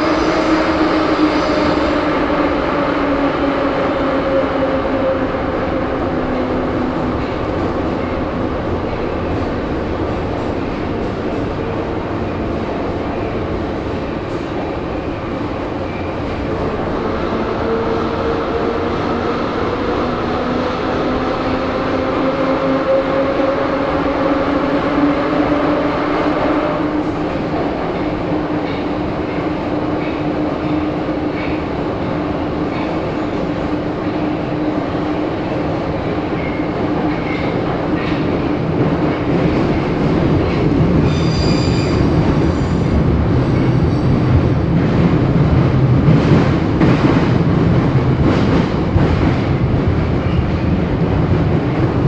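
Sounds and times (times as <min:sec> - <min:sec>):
train wheels rumbling on rails: 0:00.0 - 0:52.0
high-pitched wheel squeal: 0:41.1 - 0:42.1.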